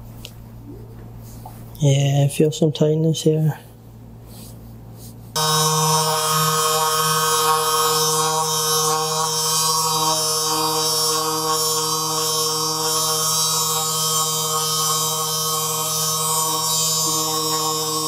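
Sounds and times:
massage gun motor buzzing: 5.4s - 18.0s.

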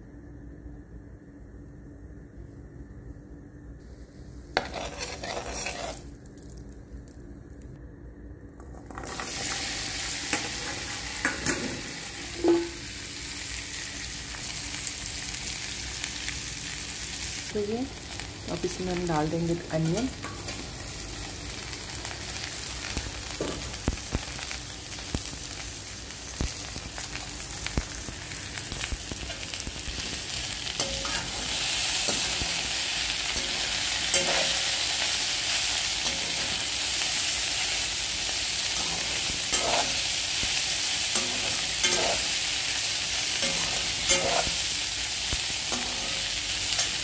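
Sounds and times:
vegetables sizzling in oil: 3.9s - 7.2s, 8.8s - 47.0s
metal spoon scraping a pan: 4.6s - 6.1s, 33.4s - 34.8s, 38.7s - 40.1s, 41.1s - 42.4s, 43.3s - 44.7s.

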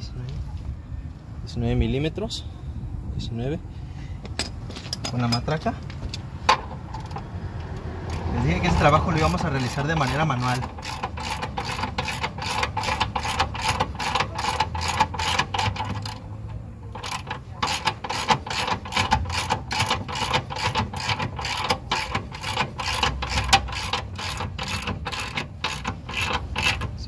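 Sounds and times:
hand ratchet clicking: 6.9s - 27.0s.

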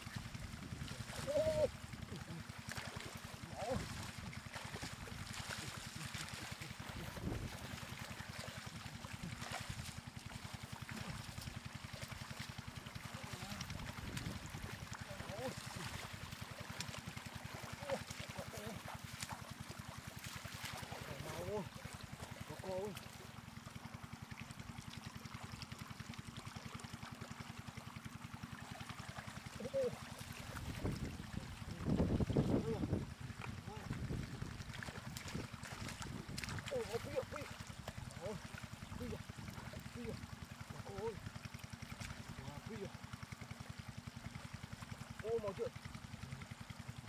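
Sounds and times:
fish splashing in water: 0.0s - 47.0s
water rushing through channel: 0.0s - 47.0s.

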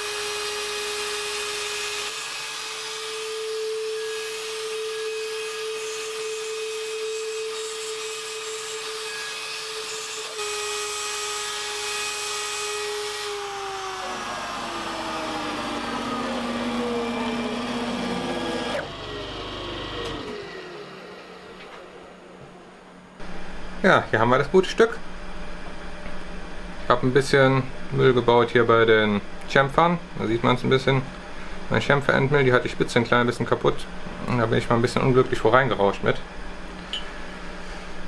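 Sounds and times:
mill cutting aluminium: 0.0s - 22.4s
router motor high hum: 0.0s - 23.3s.

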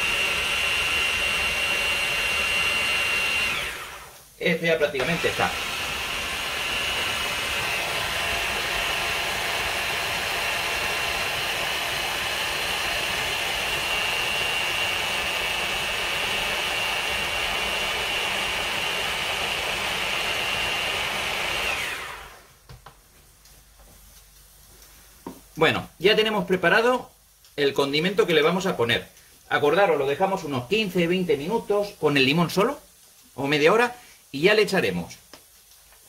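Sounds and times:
electric hand blender whining: 0.0s - 4.2s, 5.0s - 22.6s.

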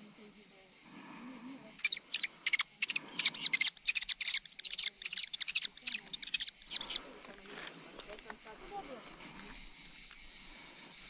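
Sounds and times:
bird chicks screeching: 1.8s - 7.1s.

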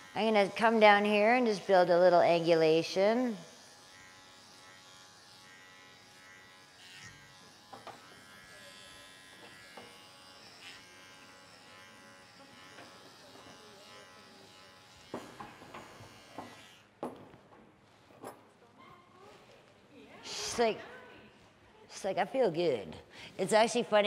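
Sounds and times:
electric clipper running: 0.0s - 17.2s.

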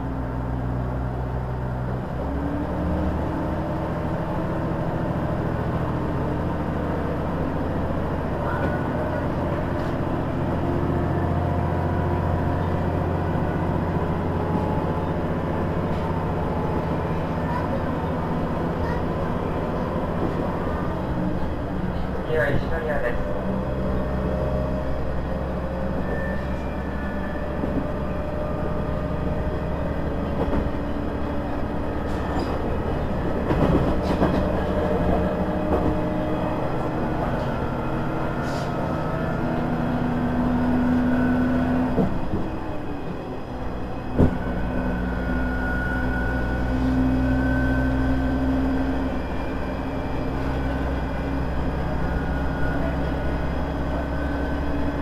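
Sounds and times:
diesel engine drone: 0.0s - 55.0s
wheel and rail noise: 12.5s - 55.0s
rail-joint clicks: 32.0s - 32.8s.

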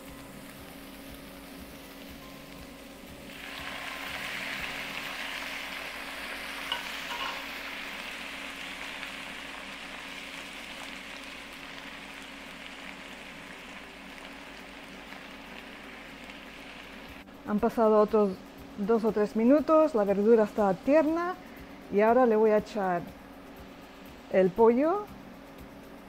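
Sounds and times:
vegetables sizzling in frying pan: 0.0s - 22.9s.

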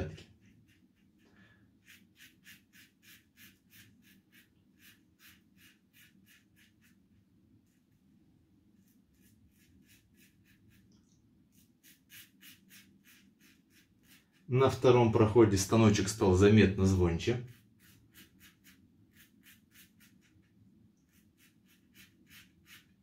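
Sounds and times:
razor scraping stubble: 1.8s - 7.0s, 8.8s - 10.9s, 11.5s - 15.1s, 17.2s - 23.0s.

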